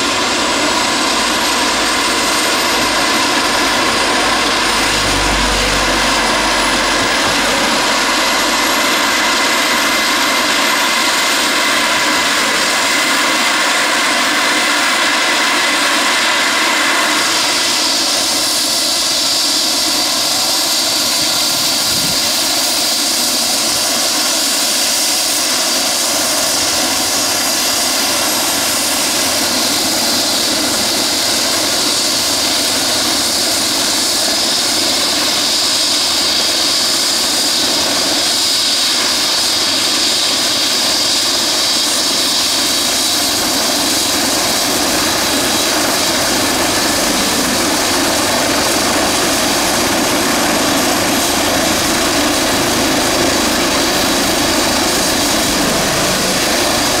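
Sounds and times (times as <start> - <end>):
helicopter rotor noise: 0.0 - 57.0
helicopter turbine whine: 0.0 - 57.0.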